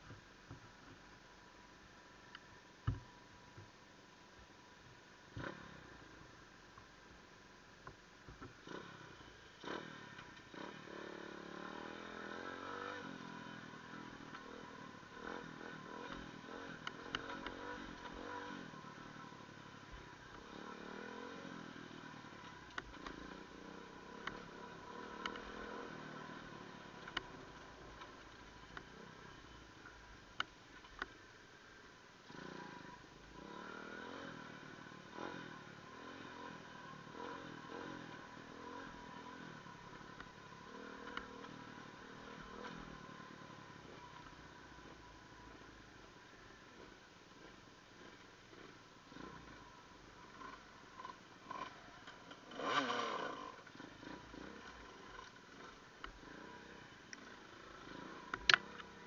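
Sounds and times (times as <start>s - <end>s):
off-road vehicle engine: 0.0s - 59.0s.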